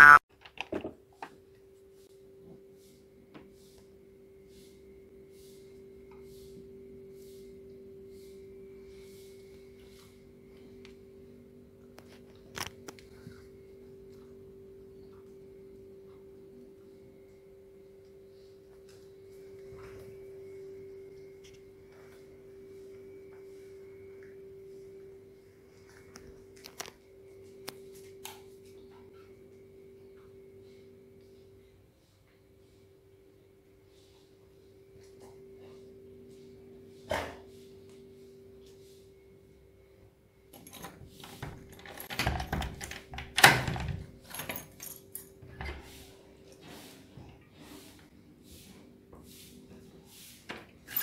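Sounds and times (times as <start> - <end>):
faint steady hum: 0.0 - 51.0
keys jangling: 44.2 - 45.4.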